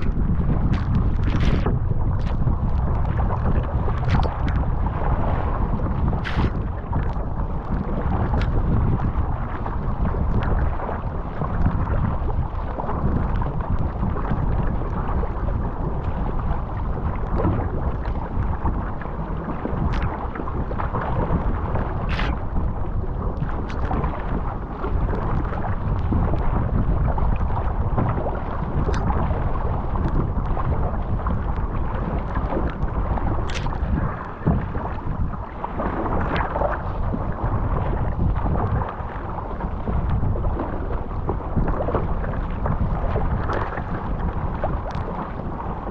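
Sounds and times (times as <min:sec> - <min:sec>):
water rushing along a hull: 0:00.0 - 0:45.9
wind buffeting microphone: 0:00.0 - 0:45.9
short sharp splashes: 0:06.2 - 0:06.6, 0:22.1 - 0:22.4.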